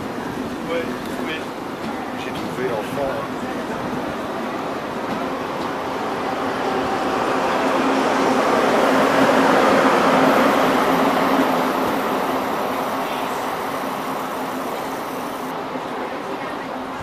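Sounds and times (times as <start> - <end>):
high-speed train passing: 0.0 - 17.0.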